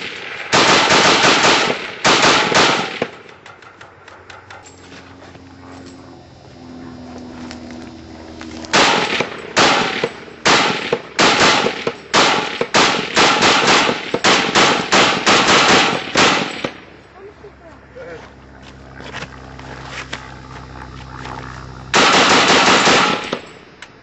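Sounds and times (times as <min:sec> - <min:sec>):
rapid gunshots: 0:00.0 - 0:04.4, 0:08.7 - 0:16.9, 0:21.9 - 0:23.6.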